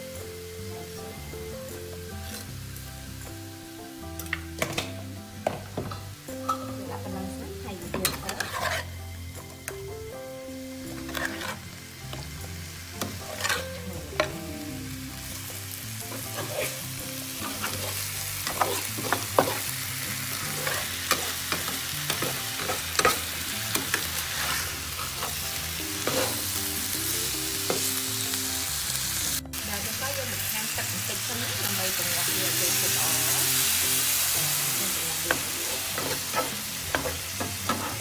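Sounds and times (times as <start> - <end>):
fish and paste sizzling in frying pan: 0.0 - 38.0
metal spatula scraping pan: 8.0 - 9.0, 10.9 - 11.6, 13.0 - 14.3, 16.1 - 16.8, 17.4 - 19.7, 20.4 - 25.4, 26.0 - 26.5, 35.3 - 38.0.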